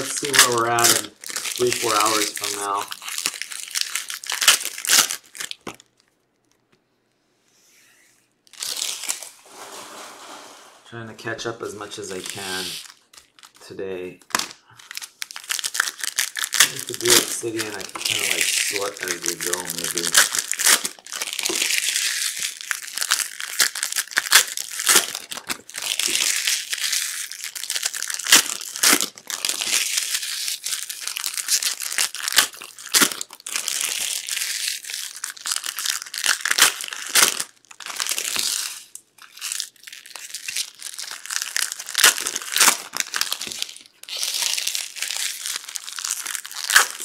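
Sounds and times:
foil wrappers tearing and crinkling: 0:00.0 - 0:06.6, 0:08.5 - 0:10.1, 0:11.6 - 0:47.0.

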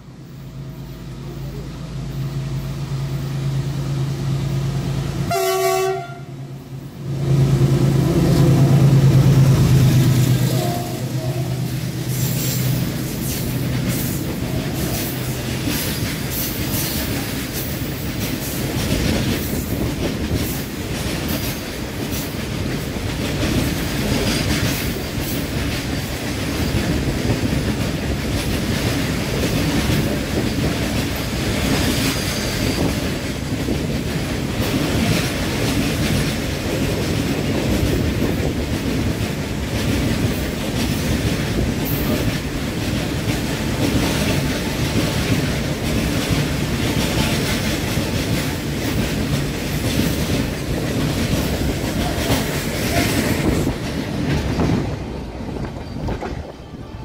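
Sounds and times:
diesel locomotive engine drone: 0:00.0 - 0:57.0
train horn blast: 0:05.2 - 0:06.6, 0:10.4 - 0:11.7
train wheels clicking over rail joints: 0:07.8 - 0:56.6.

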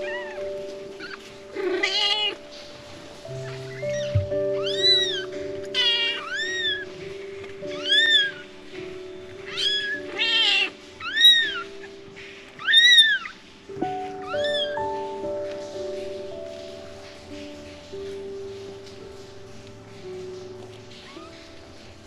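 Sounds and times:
kitten mewing: 0:00.0 - 0:02.4, 0:03.4 - 0:07.0, 0:07.7 - 0:08.5, 0:09.4 - 0:11.8, 0:12.6 - 0:13.3, 0:14.2 - 0:14.8
soft background music: 0:00.0 - 0:22.0.

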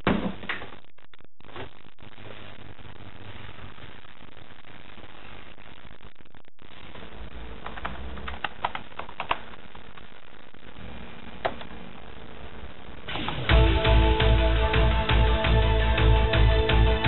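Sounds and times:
computer keyboard clicking: 0:07.7 - 0:09.4
music: 0:13.1 - 0:17.0.

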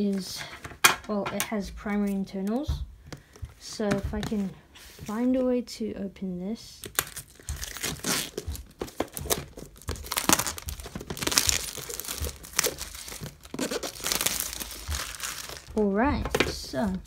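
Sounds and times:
plastic shrink-wrap crinkling: 0:06.8 - 0:17.0.

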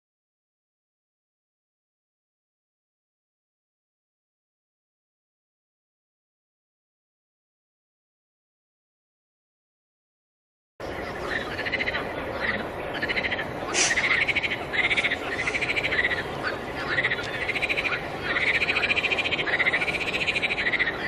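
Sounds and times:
frogs croaking: 0:10.8 - 0:21.0
distant frog chorus: 0:10.9 - 0:21.0.

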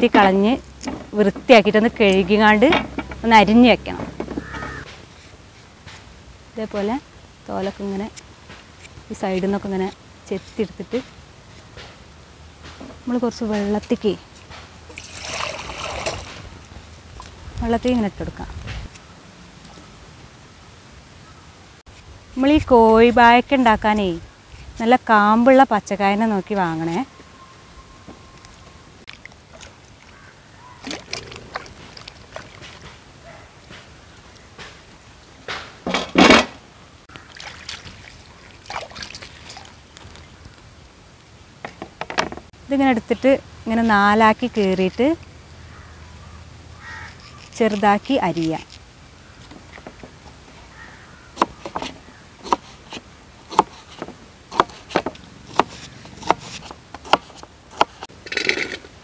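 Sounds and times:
water sloshing in steel bowl: 0:14.9 - 0:16.5
knife chopping on plastic board: 0:52.5 - 0:58.0.

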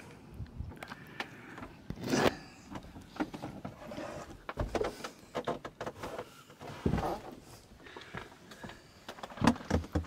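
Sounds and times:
rustling of clothes: 0:02.0 - 0:10.0.

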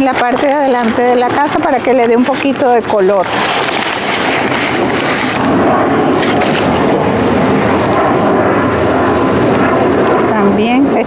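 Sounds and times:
engine drone: 0:00.0 - 0:11.0
paper rustling: 0:03.1 - 0:05.5, 0:06.2 - 0:06.8.

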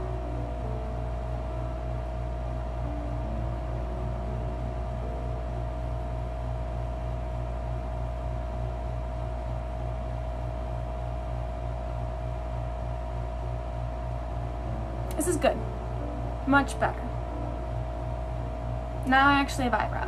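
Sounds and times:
low pulsing machine hum: 0:00.0 - 0:20.0.

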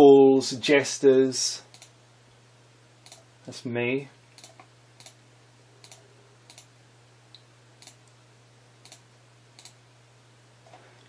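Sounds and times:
low steady hum: 0:00.0 - 0:11.0
computer mouse clicks: 0:01.7 - 0:01.9, 0:03.0 - 0:03.2, 0:04.4 - 0:05.2, 0:05.8 - 0:06.7, 0:07.8 - 0:08.0, 0:08.8 - 0:09.0, 0:09.6 - 0:09.8.

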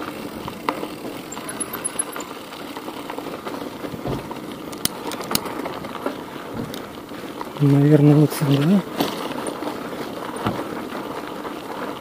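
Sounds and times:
bicycle tyres crackling on grit: 0:00.0 - 0:12.0
sharp rattling clicks: 0:01.1 - 0:02.6.

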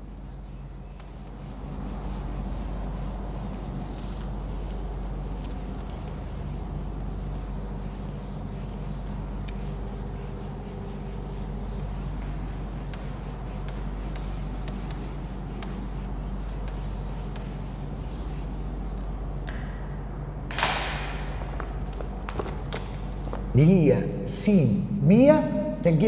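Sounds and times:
eraser rubbing on whiteboard: 0:00.0 - 0:19.4
low electrical hum: 0:00.0 - 0:26.0.

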